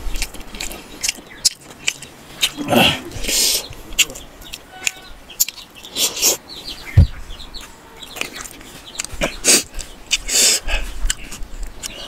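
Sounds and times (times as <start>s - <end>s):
biting and chewing: 0.0s - 6.4s, 7.6s - 12.0s
short bird calls: 2.4s - 11.3s.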